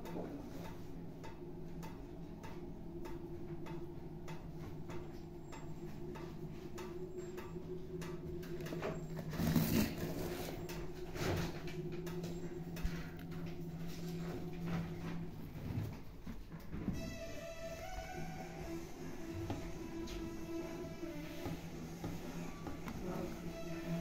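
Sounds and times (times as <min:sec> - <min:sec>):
low hum: 0:00.0 - 0:24.0.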